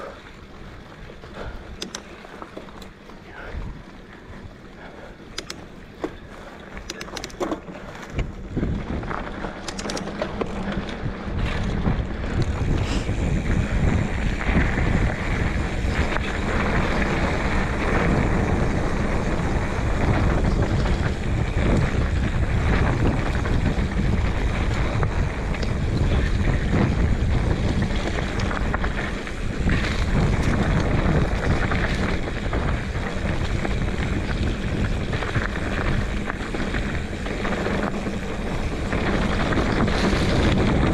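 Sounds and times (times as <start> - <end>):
scattered clicks: 1.7 - 2.9, 5.3 - 5.7, 6.7 - 8.3, 9.6 - 11.0, 11.6 - 12.6
wind rushing over microphone: 8.1 - 40.9.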